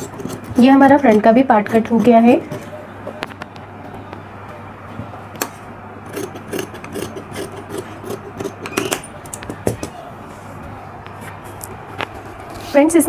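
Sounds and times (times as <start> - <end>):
scissors snipping fabric: 6.1 - 9.0.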